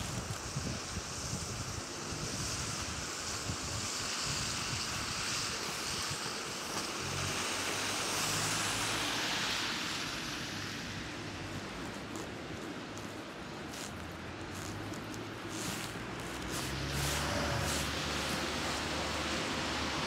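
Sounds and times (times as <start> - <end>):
wind noise on microphone: 0.0 - 6.8
bicycle tyres hissing on wet road: 0.0 - 20.0.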